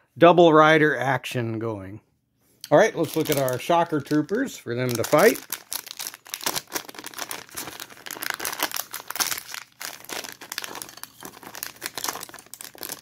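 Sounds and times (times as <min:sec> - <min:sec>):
plastic bag crinkling: 0:03.0 - 0:13.0.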